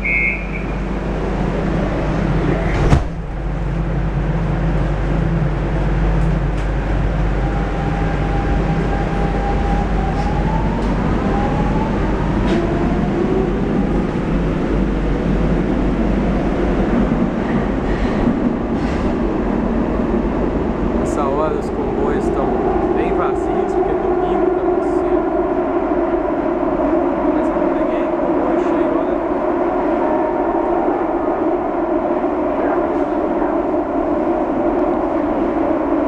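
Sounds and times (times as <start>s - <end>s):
train rumble and rushing: 0.0s - 36.0s.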